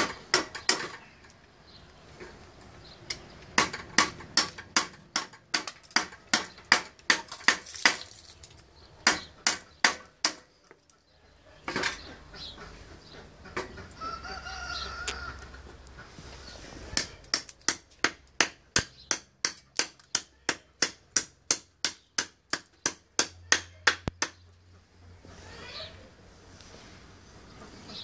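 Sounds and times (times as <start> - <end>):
cleaver chopping wood: 3.6 - 8.1, 9.0 - 10.5, 17.0 - 24.4.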